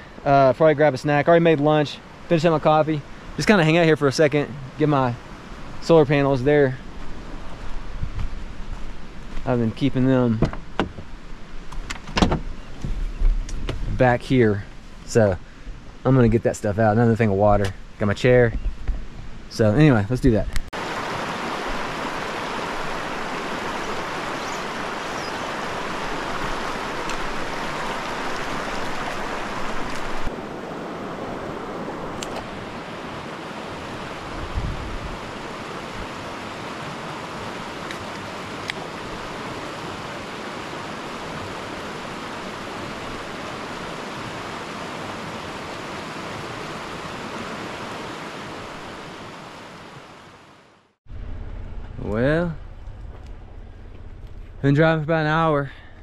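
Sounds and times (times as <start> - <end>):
dull thump: 10.4 - 11.1, 11.9 - 13.9
stream rushing over rocks: 20.8 - 50.9.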